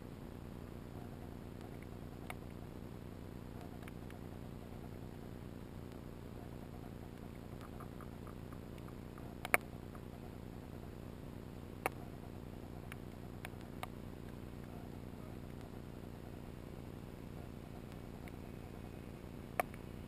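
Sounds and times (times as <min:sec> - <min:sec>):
steady low underwater noise: 0:00.0 - 0:20.0
sharp underwater clicks: 0:01.0 - 0:02.6, 0:03.6 - 0:04.4, 0:05.9 - 0:10.4, 0:11.8 - 0:14.8, 0:17.7 - 0:20.0.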